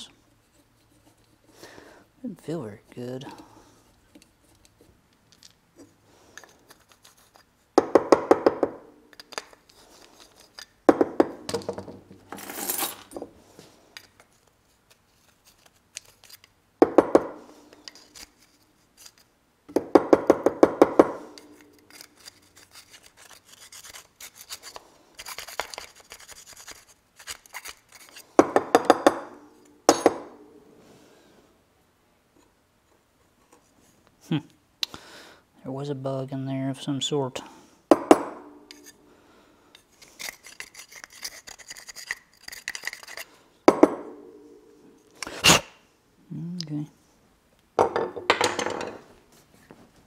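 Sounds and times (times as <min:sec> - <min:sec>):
metal pick scraping metal: 0:21.2 - 0:28.2, 0:38.6 - 0:39.0, 0:39.8 - 0:43.3.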